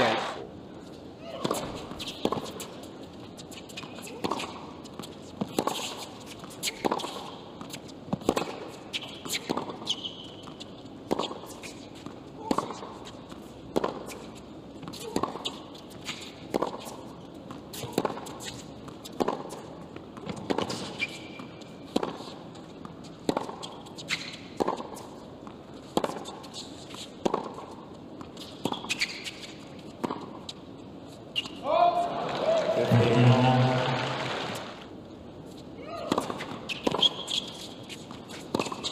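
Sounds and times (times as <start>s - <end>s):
tennis ball hit by rackets: 3.8s - 22.4s, 23.2s - 25.2s, 25.8s - 29.4s, 30.0s - 30.5s, 36.0s - 38.9s.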